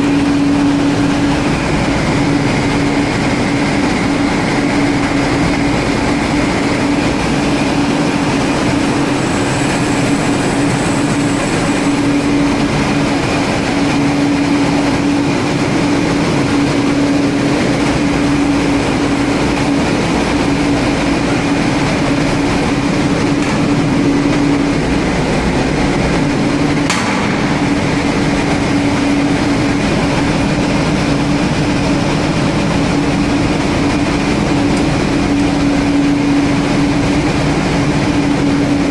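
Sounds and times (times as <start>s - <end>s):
constant hum: 0.0s - 38.9s
engine room machinery din: 0.0s - 38.9s.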